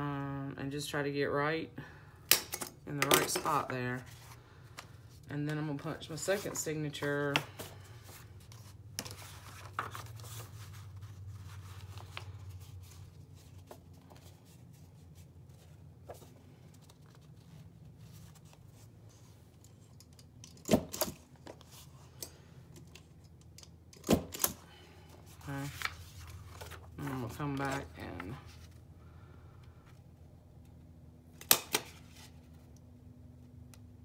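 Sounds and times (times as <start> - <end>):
book pages rustling: 4.0 - 19.9, 25.0 - 28.9.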